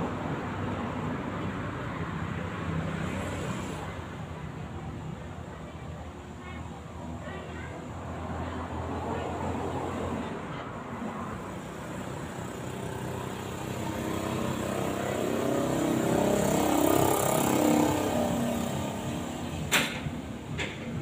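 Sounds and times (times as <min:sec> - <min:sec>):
motor vehicle passing: 0:08.0 - 0:21.0.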